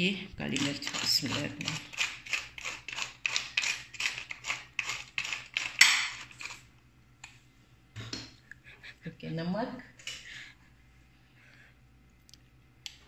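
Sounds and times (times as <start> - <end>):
pepper mill grinding: 0.4 - 6.7.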